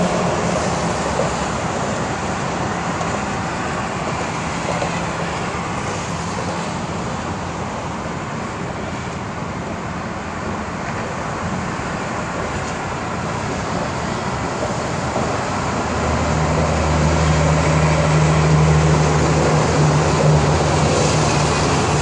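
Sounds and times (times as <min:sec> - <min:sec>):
highway traffic: 0:00.0 - 0:22.0.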